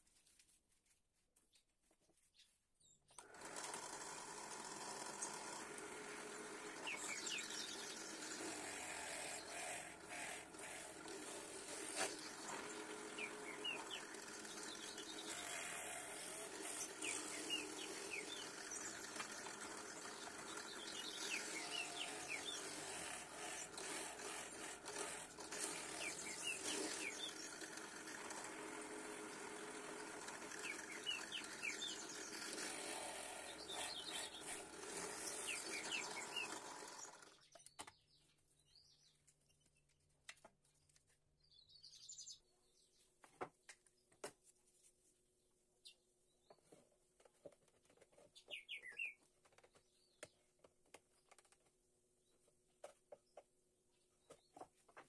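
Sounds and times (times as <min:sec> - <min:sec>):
small birds chirping: 0:01.5 - 0:03.4, 0:06.6 - 0:28.4, 0:29.1 - 0:43.2, 0:45.8 - 0:46.7, 0:48.2 - 0:51.6
drill press boring wood: 0:03.2 - 0:37.6.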